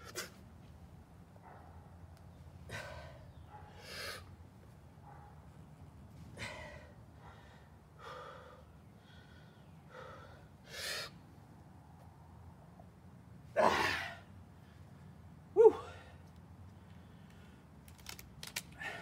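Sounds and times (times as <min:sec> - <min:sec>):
man breathing heavily and gasping: 0:02.6 - 0:04.3, 0:06.2 - 0:11.2, 0:15.6 - 0:17.7, 0:18.7 - 0:19.0.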